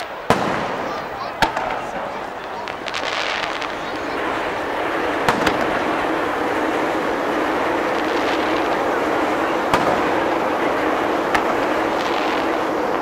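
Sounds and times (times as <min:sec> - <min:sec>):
fireworks bangs: 0:00.0 - 0:13.0
hubbub of noise: 0:00.0 - 0:13.0.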